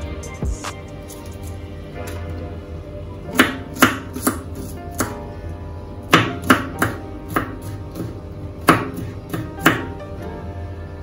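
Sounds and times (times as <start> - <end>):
knife chopping on cutting board: 3.3 - 5.2, 6.1 - 10.0.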